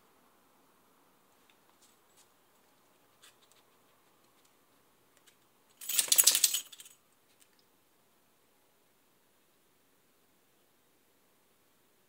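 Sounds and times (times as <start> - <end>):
dog collar tags jangling: 5.8 - 7.0.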